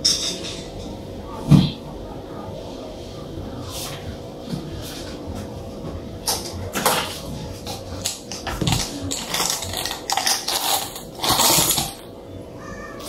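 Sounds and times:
faint steady hum: 0.0s - 13.0s
clicking and rattling of small parts: 8.0s - 12.0s.

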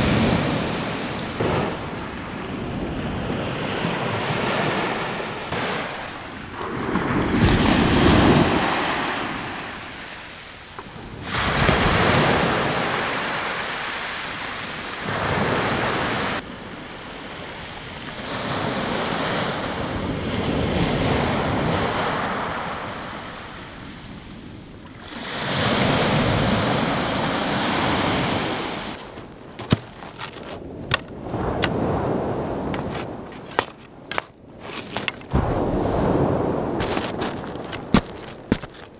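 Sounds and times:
waves washing up shingle beach: 0.0s - 38.9s
wind on microphone: 25.8s - 38.6s
stones clacking together: 29.0s - 31.8s, 32.7s - 35.4s, 36.8s - 38.9s.

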